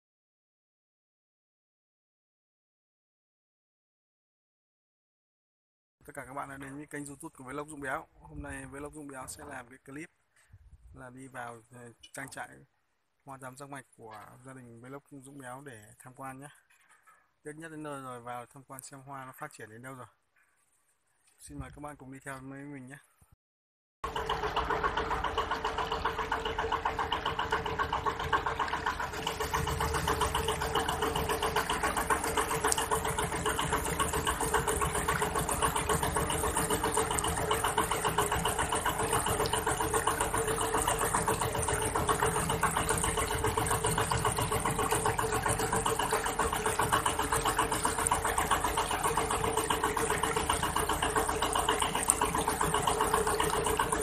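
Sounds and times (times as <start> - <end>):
boat engine running: 6.1 - 9.7, 24.0 - 54.0
water washing along hull: 24.0 - 54.0.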